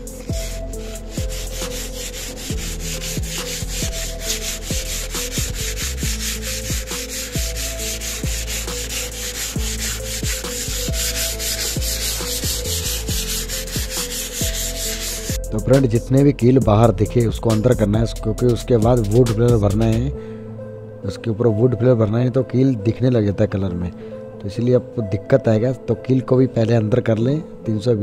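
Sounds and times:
sandpaper rubbing on wood: 0:00.0 - 0:15.4.

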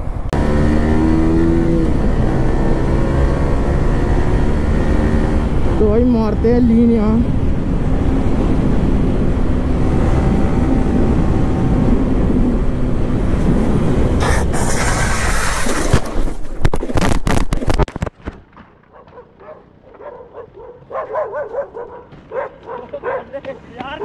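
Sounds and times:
motorcycle engine: 0:00.3 - 0:15.0
wind noise: 0:01.0 - 0:18.2
motorcycle scraping along asphalt: 0:13.3 - 0:17.8
dog yipping and barking: 0:18.9 - 0:23.3.

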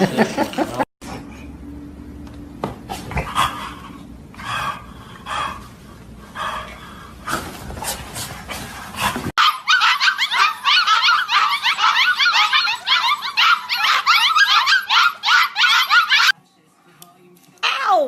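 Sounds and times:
puppies yipping and whining: 0:09.3 - 0:16.4.

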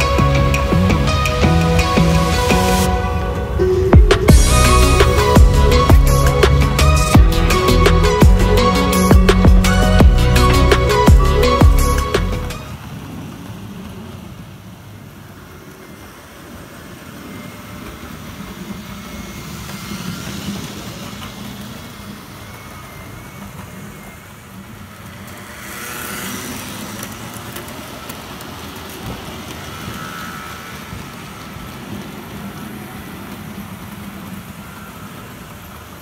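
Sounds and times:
faint high motor whine: 0:12.6 - 0:36.0
model train rolling on track: 0:12.6 - 0:36.0.

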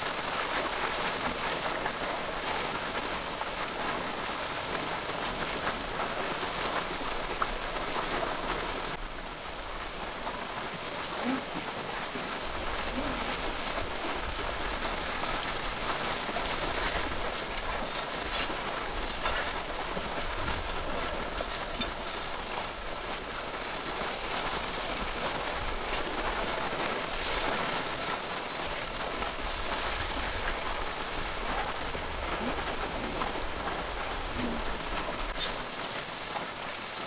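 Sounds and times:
steady hissing noise: 0:00.0 - 0:37.0
sharp crackling ticks: 0:27.0 - 0:29.9.

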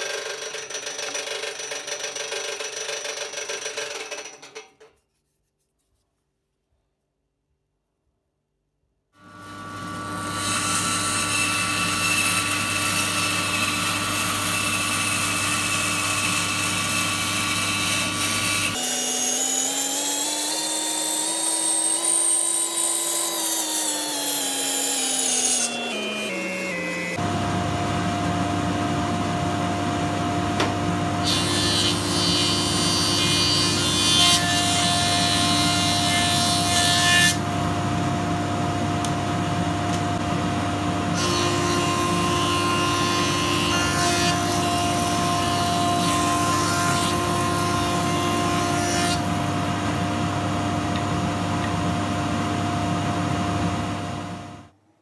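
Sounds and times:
machine hum: 0:26.0 - 0:34.2.

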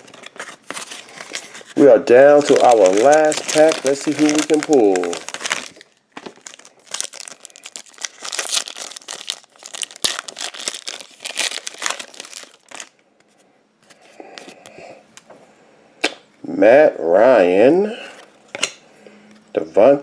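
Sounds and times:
foil wrapper crinkling and tearing: 0:00.0 - 0:13.0.

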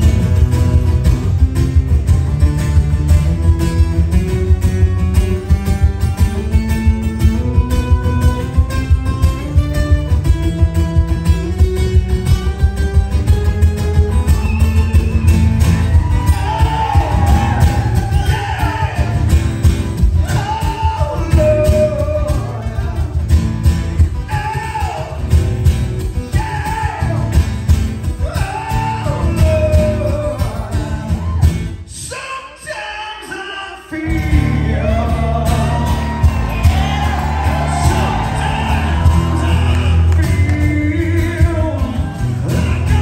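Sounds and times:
acoustic guitars strumming: 0:00.0 - 0:32.0, 0:33.9 - 0:43.0
man singing: 0:16.2 - 0:19.4, 0:20.1 - 0:23.3, 0:24.1 - 0:25.4, 0:26.1 - 0:43.0.

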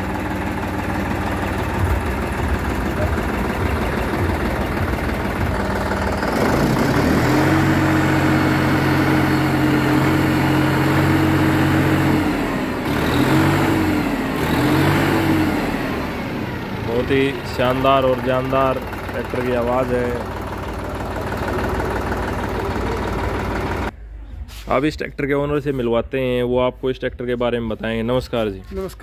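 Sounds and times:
tractor diesel engine revving: 0:00.0 - 0:24.0.

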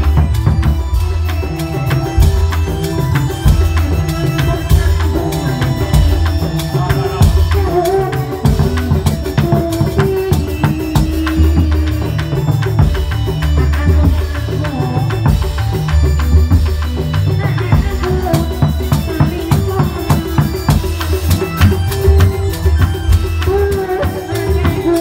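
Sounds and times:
dance music melody: 0:00.0 - 0:25.0
drums and percussion beating: 0:00.0 - 0:25.0.

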